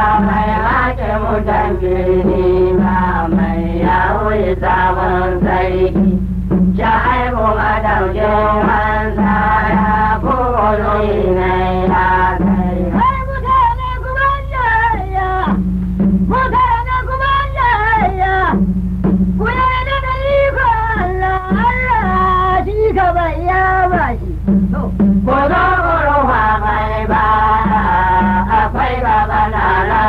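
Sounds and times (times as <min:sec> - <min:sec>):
steady low accompaniment: 0:00.0 - 0:30.0
man singing praise song: 0:06.8 - 0:13.6.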